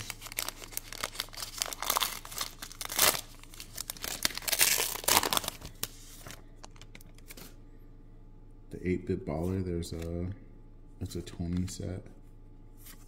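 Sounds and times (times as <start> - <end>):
wrapper tearing and crinkling: 0.0 - 7.3.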